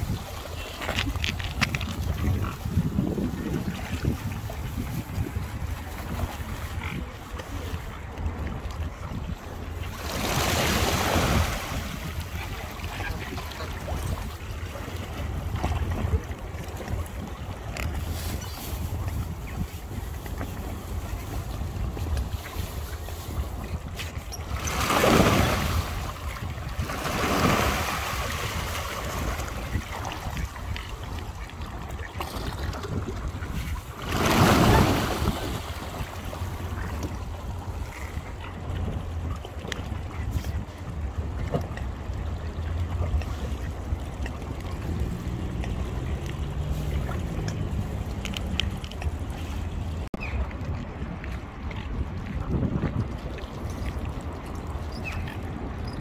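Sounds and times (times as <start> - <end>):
water splashing and churning: 0.0 - 56.0
wind rumble on microphone: 0.0 - 56.0
waterbird calls: 50.2 - 50.8, 54.8 - 56.0.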